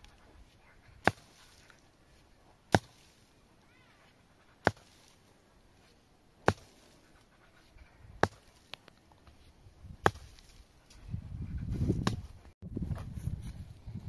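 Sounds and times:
sharp chopping strikes: 0:01.0 - 0:01.6, 0:02.7 - 0:03.1, 0:04.6 - 0:05.1, 0:06.4 - 0:06.8, 0:08.2 - 0:08.6, 0:10.0 - 0:10.6, 0:12.0 - 0:12.3.

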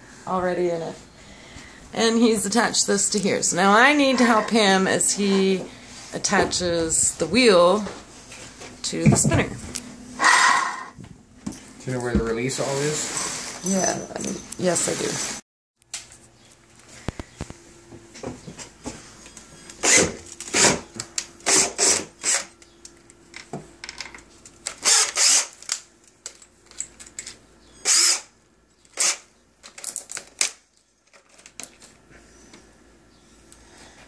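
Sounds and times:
power drill driving screws: 0:19.8 - 0:20.8, 0:21.4 - 0:22.5, 0:24.8 - 0:25.6, 0:27.8 - 0:28.3, 0:29.0 - 0:29.2.

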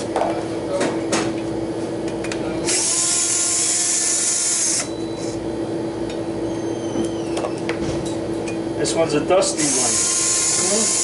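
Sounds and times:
cordless drill spinning: 0:02.7 - 0:04.9, 0:09.6 - 0:11.0.

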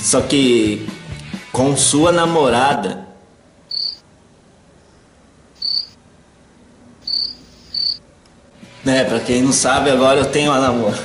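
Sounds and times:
cricket chirping: 0:03.7 - 0:04.0, 0:05.6 - 0:06.0, 0:07.0 - 0:08.0.

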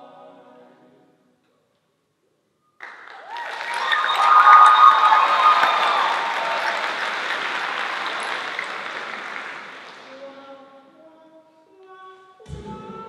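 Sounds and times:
a cappella group singing: 0:00.0 - 0:01.3
audience applause: 0:02.8 - 0:10.4.

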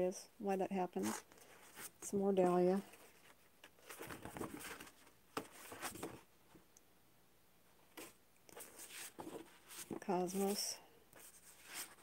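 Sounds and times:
paper rustling and crinkling: 0:02.9 - 0:06.2, 0:08.0 - 0:10.6, 0:11.2 - 0:12.0.

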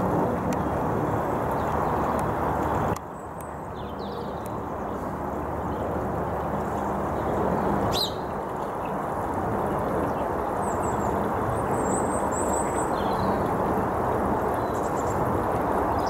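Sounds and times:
propeller plane drone: 0:00.0 - 0:16.0
birds chirping: 0:06.6 - 0:09.0.

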